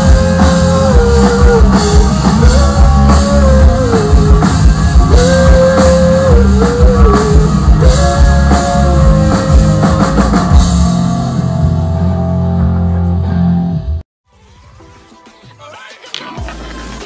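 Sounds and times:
driving drum kit: 0.0 - 13.1
bending guitar lead line: 0.0 - 14.0
electric guitars: 0.0 - 14.0.

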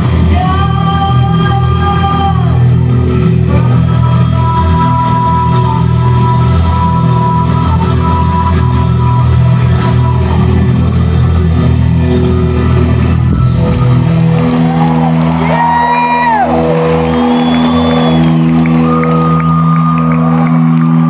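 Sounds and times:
live rock band playing: 0.0 - 21.0
crowd shouting and whooping: 12.1 - 21.0.

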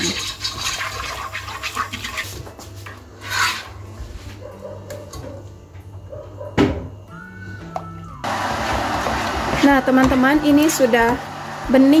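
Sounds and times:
spoon scraping batter in pot: 0.0 - 2.6, 3.2 - 3.8.

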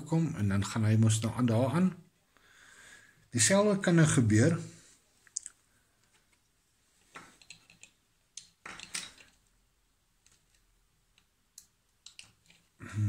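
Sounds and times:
plastic components clicking: 10.2 - 12.6.

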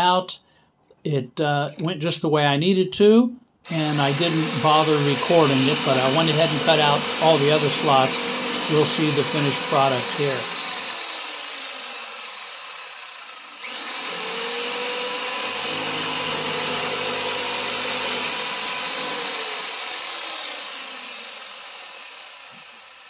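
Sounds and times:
jigsaw motor whine: 3.6 - 23.0
saw blade rasping in wood: 3.7 - 12.4, 13.6 - 23.0.

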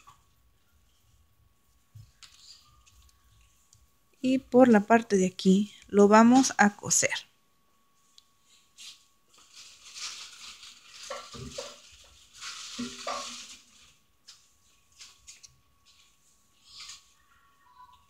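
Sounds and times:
fabric rustling and scraping: 7.9 - 17.5.

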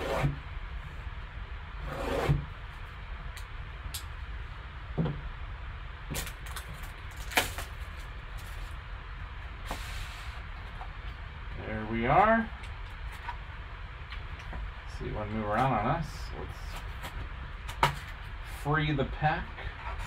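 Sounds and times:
steady low hum: 0.0 - 20.0
knife slitting plastic wrap: 6.1 - 7.8.

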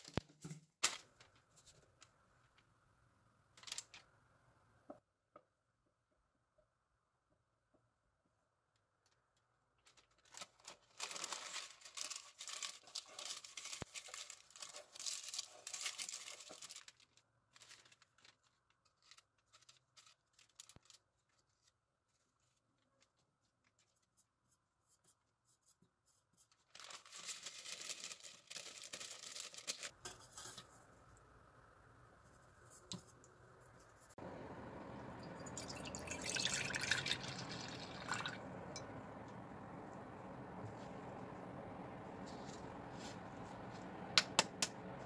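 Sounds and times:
small paper clicks: 3.5 - 4.1, 8.8 - 24.3, 26.4 - 30.6
paper tearing and crinkling: 3.6 - 4.0, 9.8 - 21.8, 26.5 - 30.6.

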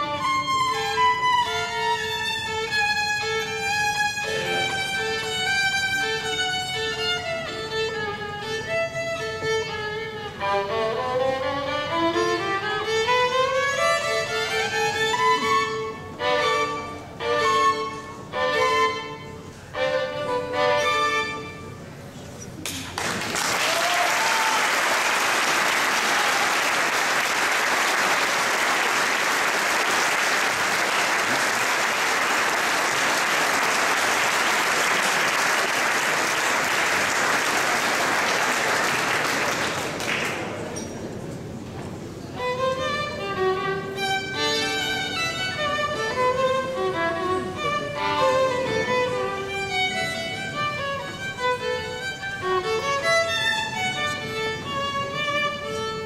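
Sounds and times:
violin playing: 0.0 - 21.9, 42.4 - 56.0
audience applauding: 22.6 - 40.7.

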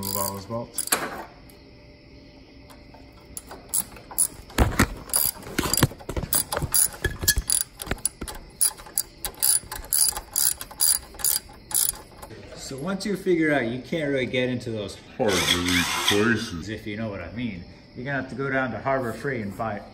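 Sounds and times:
ratchet wrench clicking: 0.0 - 1.0, 5.1 - 12.3.

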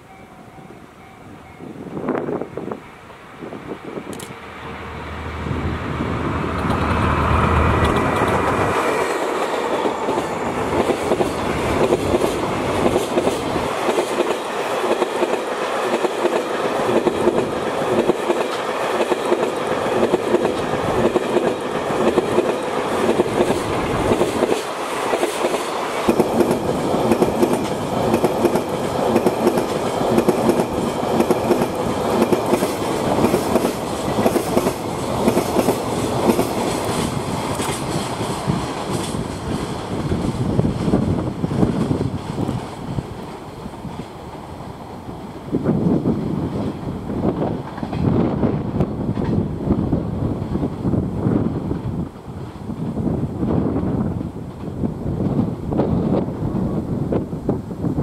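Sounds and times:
locomotive engine rumbling: 2.6 - 12.7
wheel clatter over rail joints: 6.4 - 14.5.

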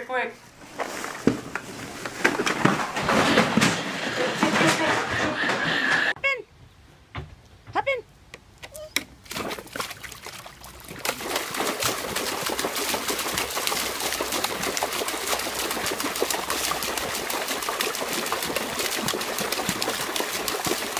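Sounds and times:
dog splashing in water: 9.2 - 20.9.

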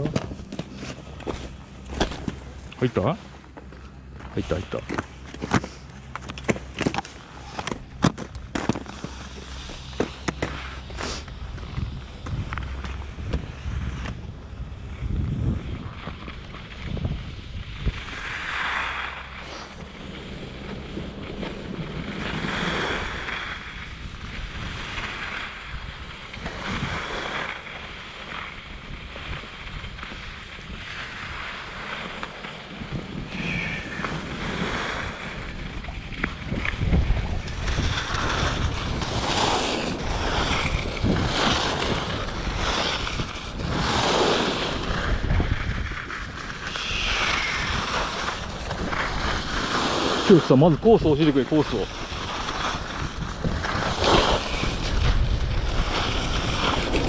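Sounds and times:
wind buffeting microphone: 6.2 - 18.5, 32.6 - 57.0.

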